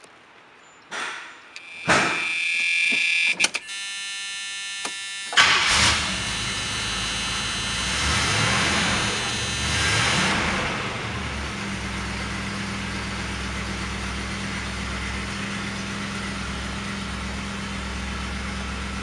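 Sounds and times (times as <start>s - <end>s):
warning buzzer: 1.6s - 11.0s
car engine cranking and running: 1.6s - 19.0s.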